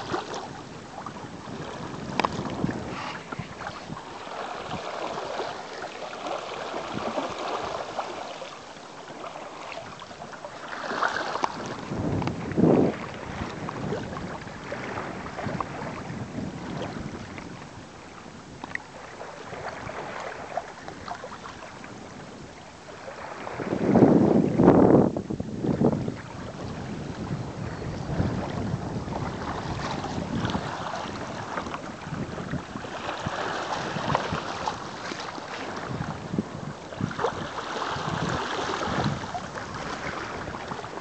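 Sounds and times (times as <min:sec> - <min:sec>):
wind buffeting microphone: 0:00.0 - 0:08.2, 0:09.6 - 0:41.0
water splashing along kayak hull: 0:00.0 - 0:41.0.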